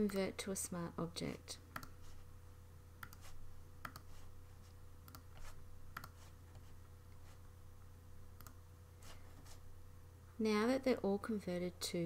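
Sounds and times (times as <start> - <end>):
low steady hum: 0.0 - 12.0
faint computer mouse clicks: 3.0 - 4.1.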